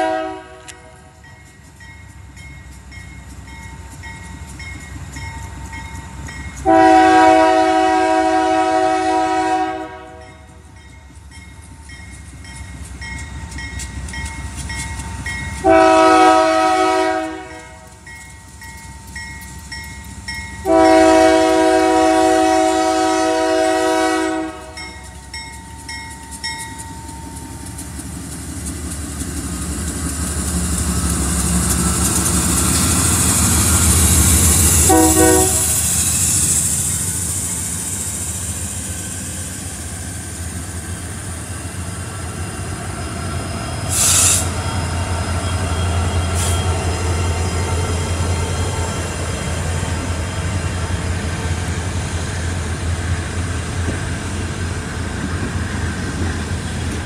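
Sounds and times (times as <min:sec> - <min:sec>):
locomotive horn blasts: 0:00.0 - 0:01.2, 0:06.6 - 0:10.4, 0:15.6 - 0:17.9, 0:20.6 - 0:24.9, 0:34.8 - 0:35.8
train rumble: 0:00.0 - 0:57.0
crossing bell ringing: 0:00.8 - 0:06.8, 0:10.1 - 0:15.8, 0:17.6 - 0:21.6, 0:24.5 - 0:27.9, 0:44.5 - 0:51.4.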